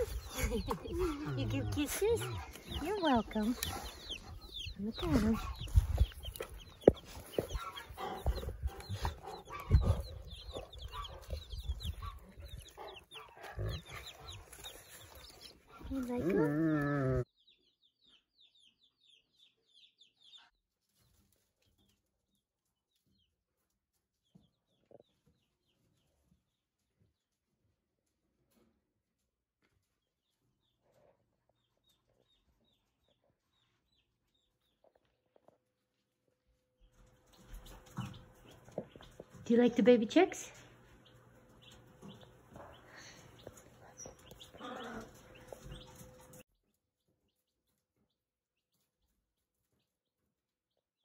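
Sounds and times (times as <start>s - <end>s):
chicks peeping: 0.0s - 27.3s, 29.7s - 36.0s, 36.8s - 50.8s.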